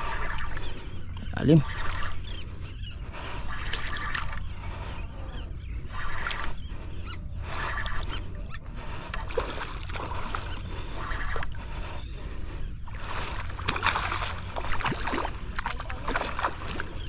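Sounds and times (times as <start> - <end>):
water splashing and sloshing: 0.0 - 17.0.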